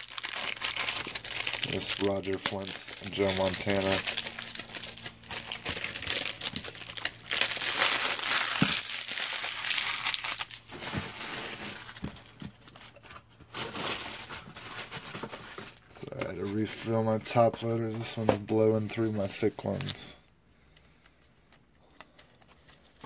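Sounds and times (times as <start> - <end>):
plastic packaging crinkling: 0.0 - 16.9.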